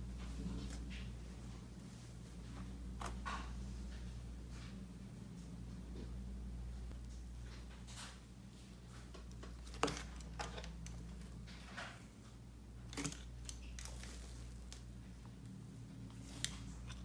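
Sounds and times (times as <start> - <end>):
steady low hum: 0.0 - 17.0
slime crackling and squishing: 12.8 - 17.0.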